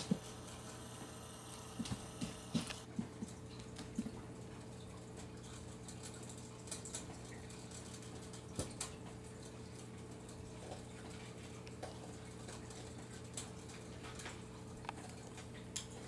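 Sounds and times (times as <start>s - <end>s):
steady low hum: 0.0s - 2.9s
animal eating from plastic bowl: 1.8s - 16.0s.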